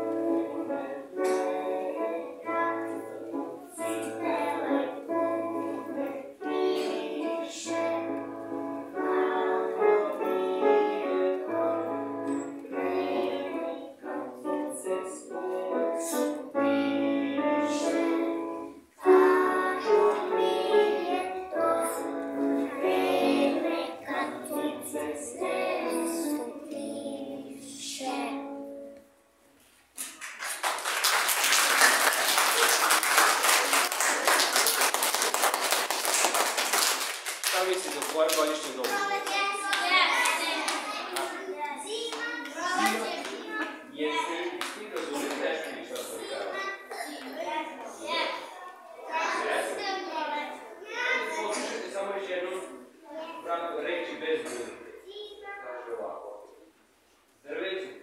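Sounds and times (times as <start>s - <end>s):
children singing: 0.0s - 28.8s, 42.6s - 43.4s
piano accompaniment: 0.0s - 29.2s
audience applauding: 30.0s - 41.4s.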